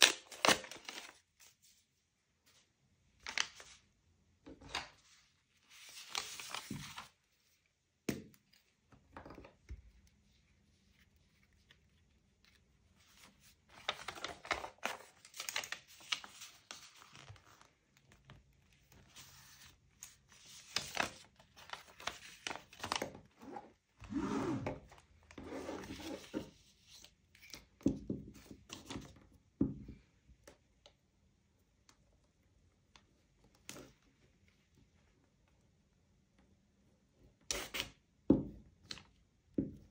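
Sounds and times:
paper crinkling and tearing: 0:00.0 - 0:01.6, 0:05.6 - 0:07.2, 0:10.9 - 0:23.3.

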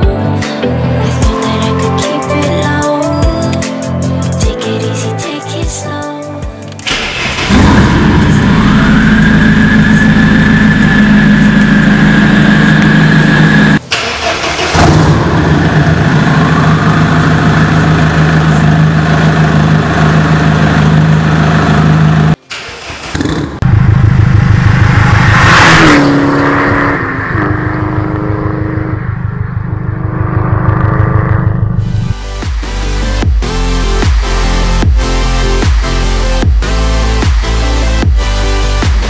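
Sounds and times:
engine revving: 0:06.8 - 0:38.9
diesel engine idling: 0:06.9 - 0:25.0.

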